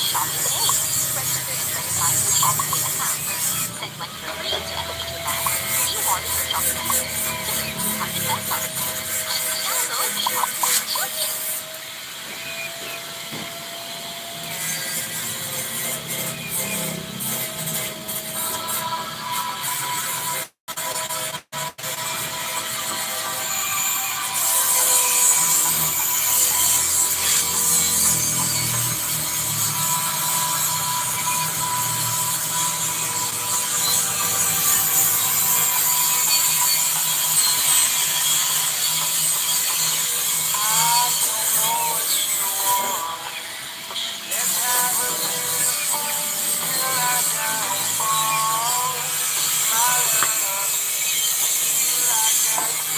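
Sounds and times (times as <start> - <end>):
metal scraping and grinding: 0.0 - 11.7, 22.8 - 52.9.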